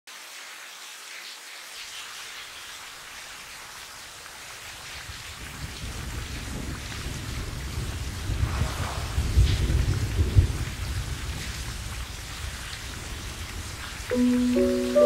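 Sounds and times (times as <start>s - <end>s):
steady rain falling: 0.1s - 15.0s
low rumble of thunder: 5.1s - 14.1s.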